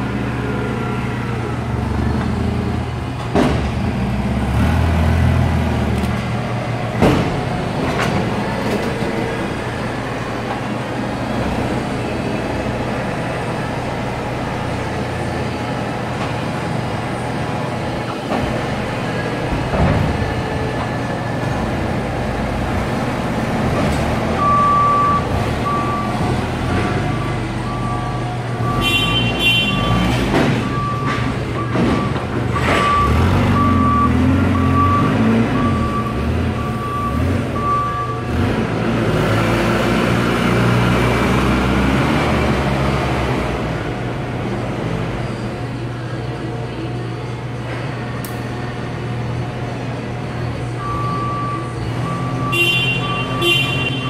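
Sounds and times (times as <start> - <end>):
forklift engine running: 0.0 - 54.0
reversing alarm beeping: 24.4 - 38.3, 50.7 - 54.0.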